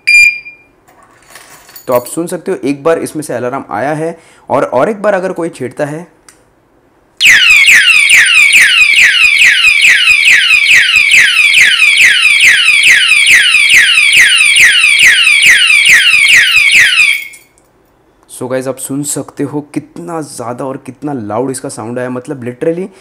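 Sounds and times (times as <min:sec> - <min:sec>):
alarm siren wailing: 0:07.2 - 0:17.5.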